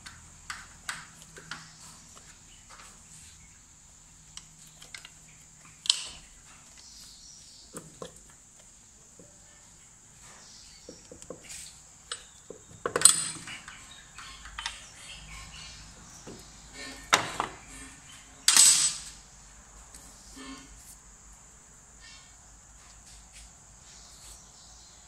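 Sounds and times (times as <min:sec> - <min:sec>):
metal parts and tools clattering: 0:12.0 - 0:15.5, 0:16.7 - 0:19.2.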